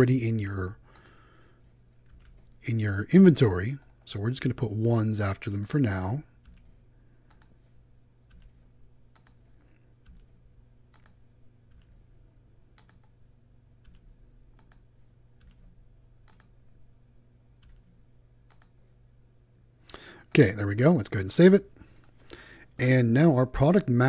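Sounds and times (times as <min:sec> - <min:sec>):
low steady hum: 0:00.0 - 0:24.0
keyboard and mouse clicks: 0:00.9 - 0:01.2, 0:02.0 - 0:02.6, 0:06.4 - 0:12.1, 0:12.7 - 0:13.2, 0:13.8 - 0:16.6, 0:17.6 - 0:18.8.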